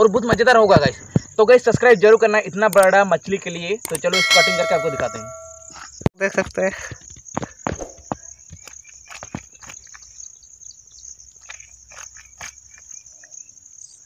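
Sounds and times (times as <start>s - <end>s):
insects buzzing: 6.9s - 14.0s.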